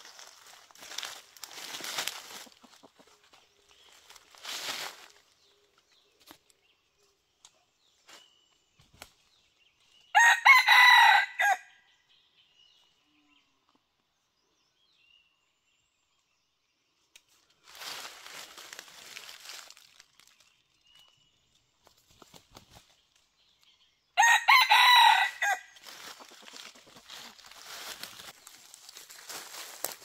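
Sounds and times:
rustling in dry leaves: 0.0 - 6.3, 17.4 - 20.7, 24.5 - 30.0
rooster crowing: 10.2 - 11.7, 24.2 - 25.8.

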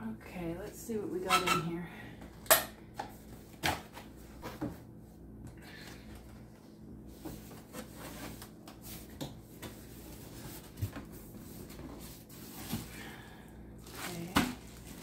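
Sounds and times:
cardboard and paper rustling: 7.1 - 13.2, 13.8 - 15.0.

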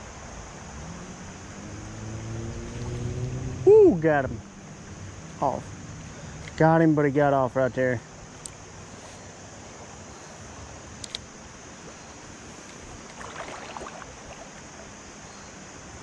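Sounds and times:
creek water flowing: 0.0 - 16.0
faint sharp clicks: 8.4 - 8.6, 11.0 - 11.3.

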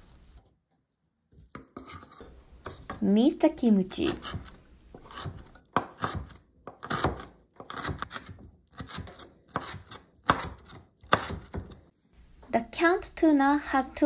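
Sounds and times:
knife chopping on wooden board: 4.1 - 11.8.

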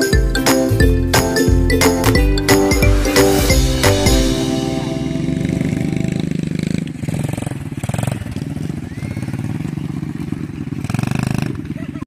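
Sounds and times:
quad bike engine running: 5.9 - 12.0.

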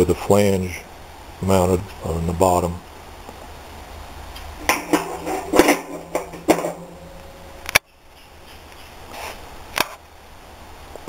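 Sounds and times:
metal arms clanking against drum: 4.6 - 7.6.

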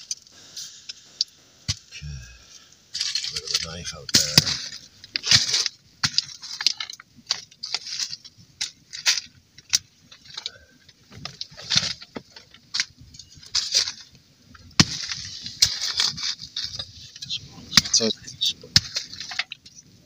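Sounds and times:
kindling sticks clattering: 2.9 - 10.5.

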